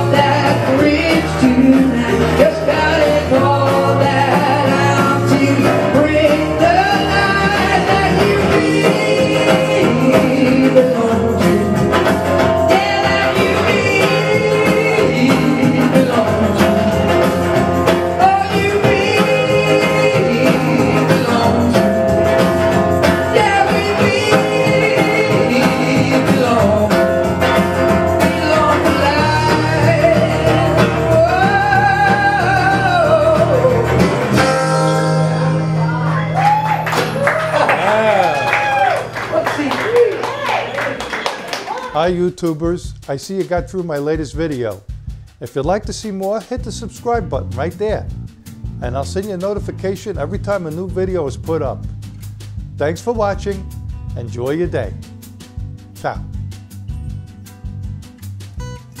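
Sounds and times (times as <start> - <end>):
man singing: 0.0 - 35.7, 45.4 - 48.2, 48.8 - 51.8
acoustic guitar strumming: 0.0 - 39.2, 41.6 - 59.0.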